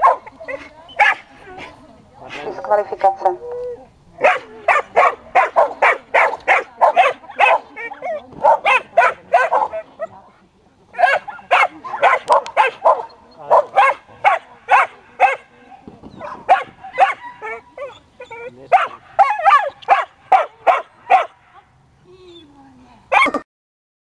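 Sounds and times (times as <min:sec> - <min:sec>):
dog barking and yipping: 0:00.0 - 0:01.3, 0:04.2 - 0:10.1, 0:11.0 - 0:15.5, 0:16.2 - 0:21.4, 0:23.1 - 0:23.4.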